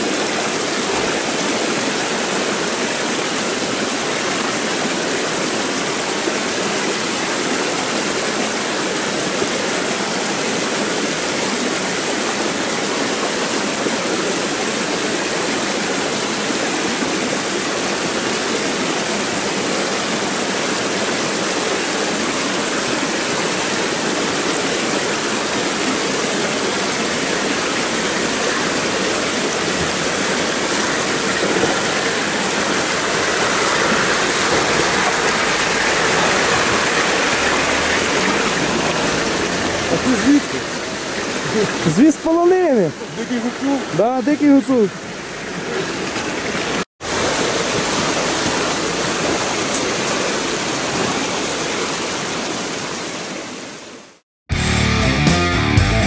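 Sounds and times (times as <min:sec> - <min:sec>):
stream rushing over stones: 0:00.0 - 0:54.2.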